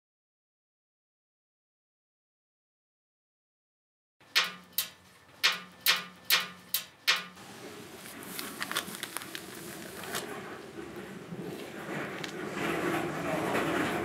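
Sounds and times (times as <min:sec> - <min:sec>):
sharp ringing taps: 0:04.3 - 0:07.4.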